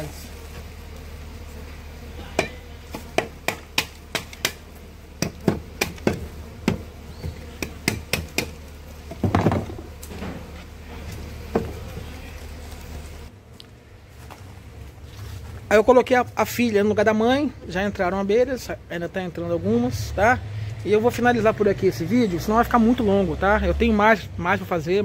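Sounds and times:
wood crunching: 0.0 - 16.2
sharp knocks on wooden box: 2.3 - 4.6, 5.2 - 10.4.

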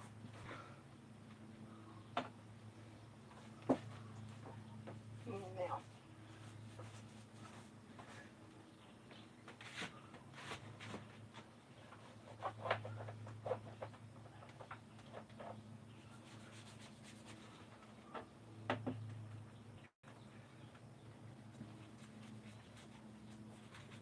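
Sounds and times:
paintbrush brushing and dabbing: 5.2 - 7.8, 16.0 - 17.7, 21.6 - 24.0.

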